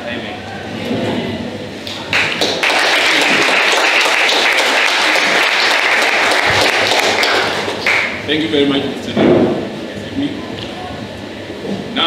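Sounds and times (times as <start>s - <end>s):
audience applauding: 1.9s - 8.3s.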